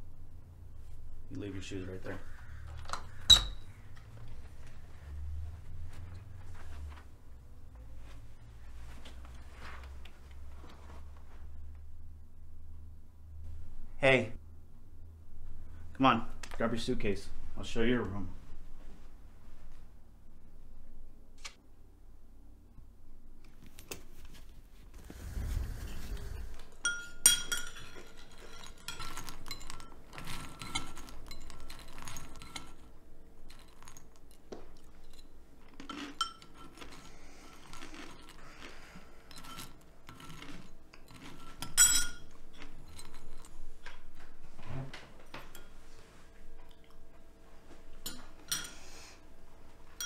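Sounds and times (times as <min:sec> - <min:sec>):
low rumble: 0:25.0 - 0:26.8
spoons clinking on ceramic bowls: 0:26.8 - 0:37.1, 0:39.3 - 0:43.6, 0:45.3 - 0:45.9, 0:47.9 - 0:49.0.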